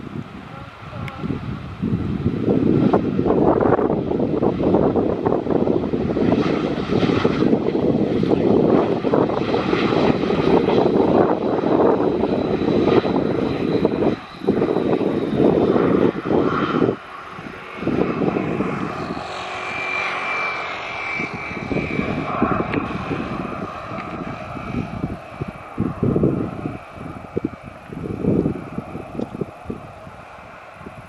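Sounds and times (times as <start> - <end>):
high whine: 0.0 - 31.0
jet engines running loudly: 0.0 - 31.0.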